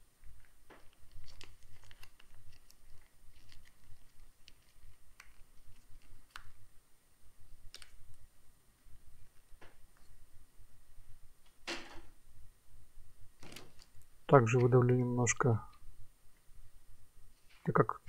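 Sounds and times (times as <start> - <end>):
plastic sachet crackling: 0.8 - 6.6.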